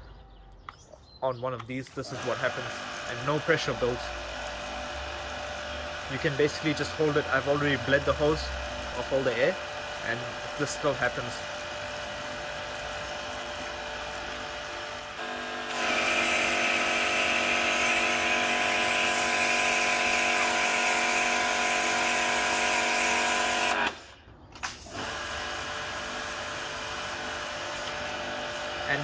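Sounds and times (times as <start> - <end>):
pressure washer motor hum: 1.9 - 29.0.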